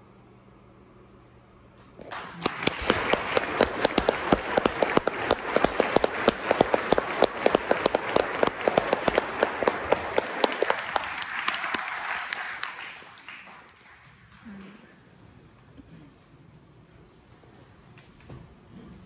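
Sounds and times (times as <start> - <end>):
sharp loud claps close by: 2.0 - 13.9
audience applauding: 2.0 - 15.0.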